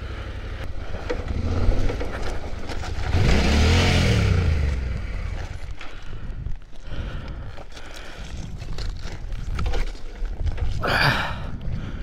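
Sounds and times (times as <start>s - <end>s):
rush of dirt and gravel: 0.0s - 12.0s
motorcycle engine revving: 0.2s - 5.7s.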